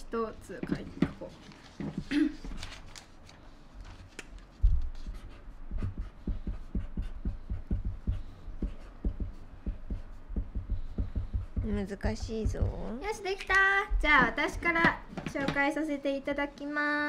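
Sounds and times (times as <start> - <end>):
marker pens drawing on paper: 4.8 - 12.5.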